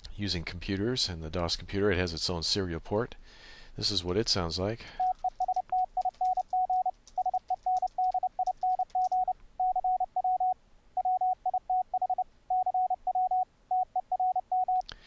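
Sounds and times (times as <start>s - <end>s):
morse code tone: 5.0s - 14.8s
computer keys clicking: 5.1s - 9.3s.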